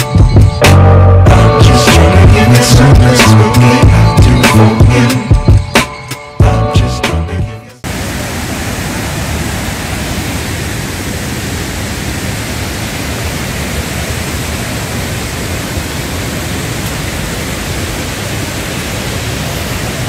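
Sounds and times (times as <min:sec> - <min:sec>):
water rushing over rocks: 0:07.8 - 0:20.0.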